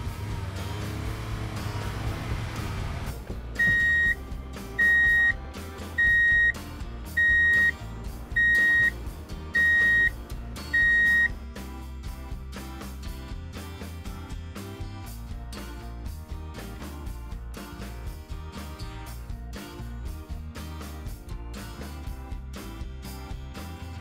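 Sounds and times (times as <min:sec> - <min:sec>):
background music: 0:00.0 - 0:24.0
high electronic beeps: 0:03.6 - 0:04.2, 0:04.8 - 0:05.4, 0:06.0 - 0:06.6, 0:07.2 - 0:07.7, 0:08.4 - 0:08.9, 0:09.6 - 0:10.1, 0:10.8 - 0:11.3.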